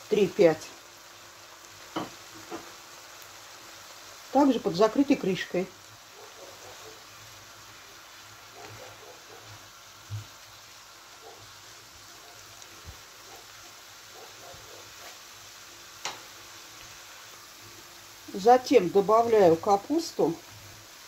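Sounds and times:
vegetables sizzling in pan: 0.0s - 21.0s.

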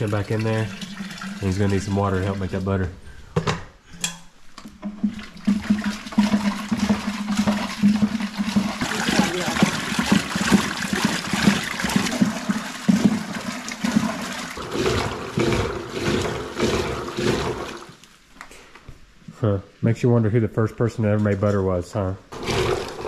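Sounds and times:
liquid sloshing in churn: 0.0s - 2.8s, 4.8s - 18.0s, 22.3s - 23.0s.

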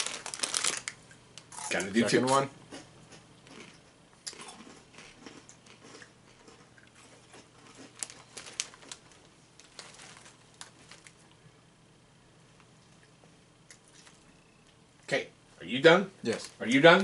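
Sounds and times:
snack bag rustling: 0.0s - 1.8s, 3.5s - 11.4s
chewing crunchy corn puffs: 0.0s - 11.4s.

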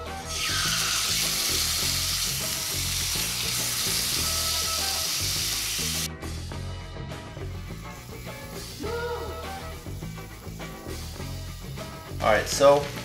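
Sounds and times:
background music with steady beat: 0.0s - 13.0s
steak sizzling in a skillet: 0.2s - 6.1s, 8.6s - 12.0s.

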